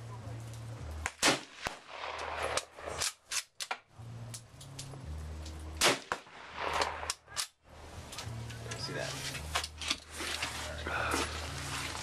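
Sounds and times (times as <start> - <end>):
rifle shot: 1.0 - 3.4, 5.8 - 7.5.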